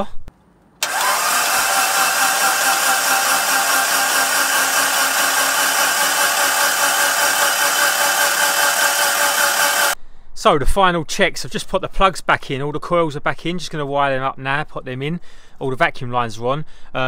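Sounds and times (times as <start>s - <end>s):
starter motor cranking engine: 0.8s - 10.0s.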